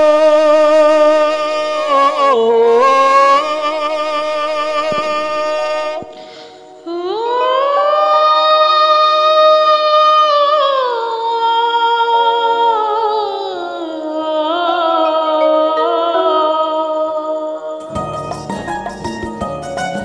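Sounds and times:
karaoke backing track: 0.0s - 20.0s
woman humming: 14.0s - 17.8s.

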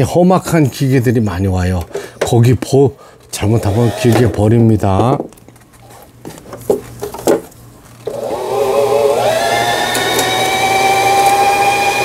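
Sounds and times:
sewing machine motor whine: 8.1s - 12.0s.

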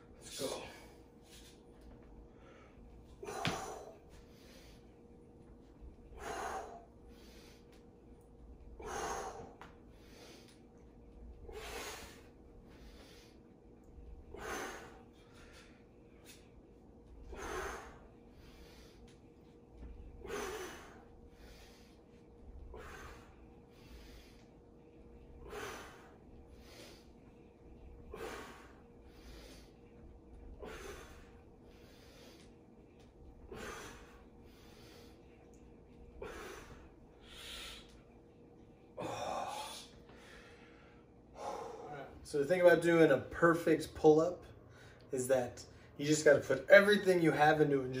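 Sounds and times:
man breathing hard: 2.2s - 5.3s, 6.0s - 8.0s, 8.6s - 38.3s, 38.9s - 42.2s.

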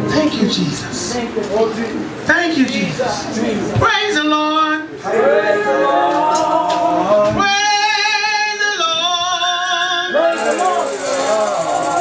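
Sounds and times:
person singing through a microphone: 4.4s - 12.0s.

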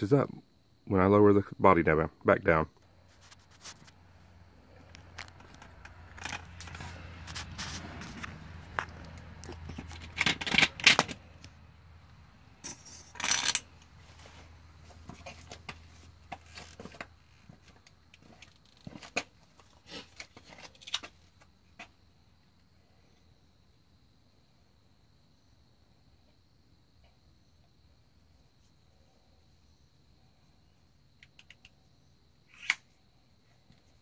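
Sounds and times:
clicks scrapes and rattles: 5.2s - 11.2s.

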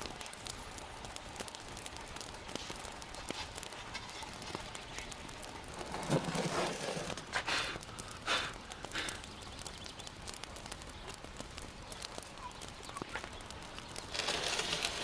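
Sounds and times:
burning wood crackling: 0.0s - 15.0s
metal tray scraping oven floor: 5.8s - 7.2s, 14.1s - 15.0s.

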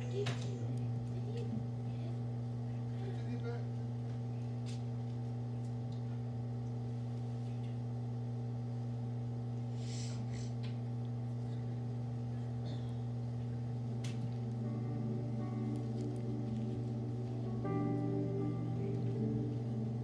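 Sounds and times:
steady low hum: 0.0s - 20.0s
faint sustained musical tones: 13.6s - 20.0s.

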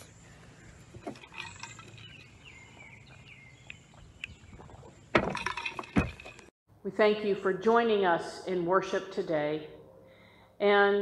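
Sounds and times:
faint birdsong: 0.0s - 5.3s.

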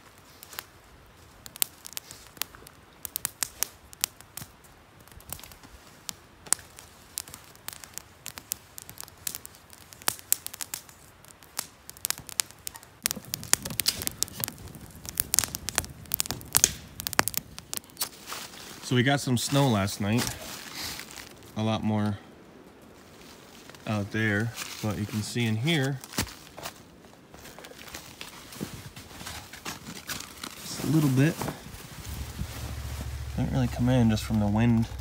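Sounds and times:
campfire crackling and popping: 0.0s - 35.0s
low rushing sound: 31.6s - 35.0s.

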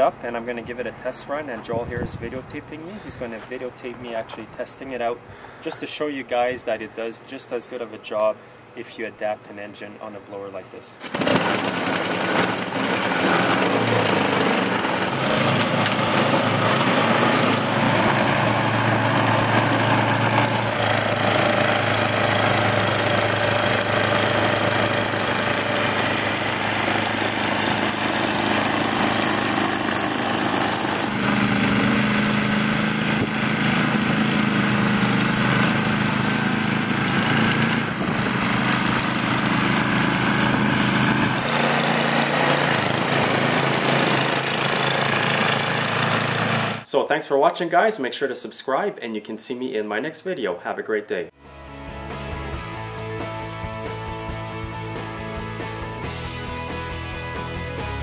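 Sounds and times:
snowblower engine running: 11.0s - 46.9s.

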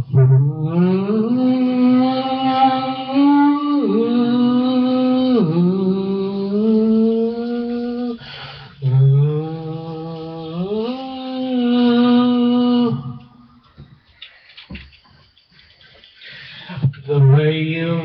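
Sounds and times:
man singing long wordless notes: 0.0s - 13.5s.

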